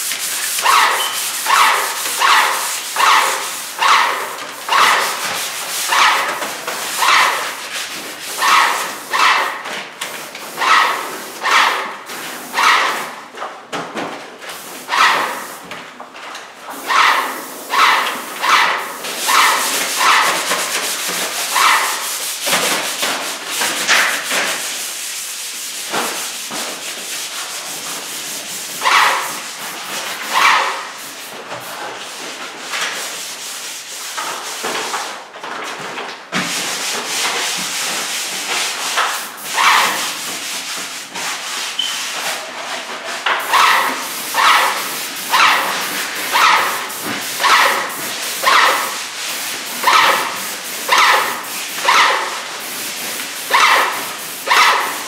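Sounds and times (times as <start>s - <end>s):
hand sanding strokes: 0.0s - 13.3s, 14.5s - 15.7s, 16.7s - 35.2s, 36.4s - 55.0s.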